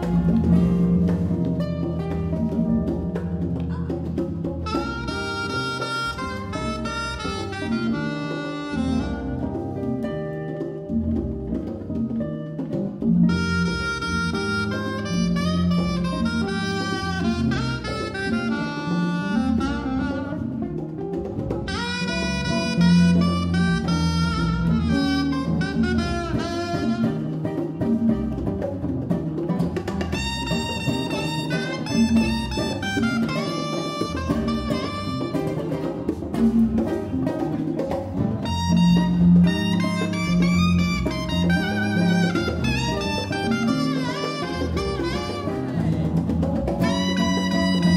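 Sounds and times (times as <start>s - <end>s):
saxophone melody: 0.0s - 12.4s, 13.0s - 28.3s, 28.9s - 47.9s
acoustic guitar: 0.0s - 47.9s
bass: 0.0s - 47.9s
congas: 0.0s - 47.9s.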